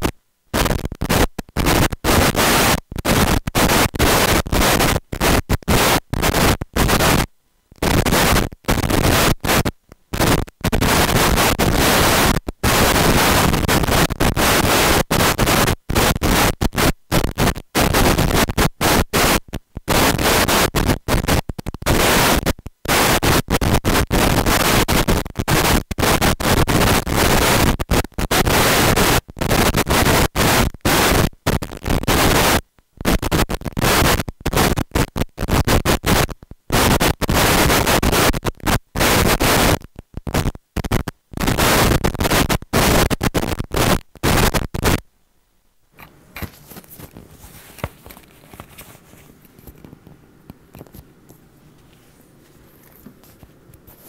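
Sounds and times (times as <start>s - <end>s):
harsh static hiss: 0.0s - 54.0s.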